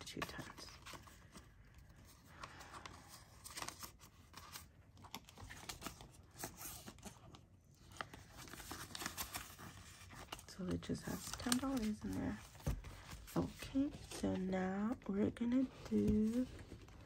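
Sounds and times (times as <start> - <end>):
banknotes rustling: 7.8 - 17.0.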